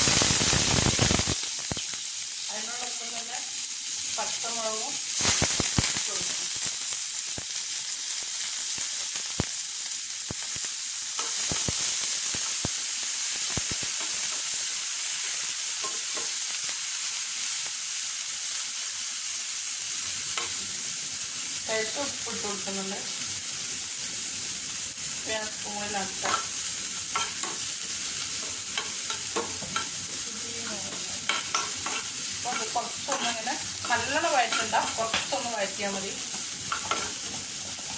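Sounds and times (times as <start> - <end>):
onions sizzling in hot oil: 0.0 - 37.9
spatula scraping a pan: 31.3 - 35.4.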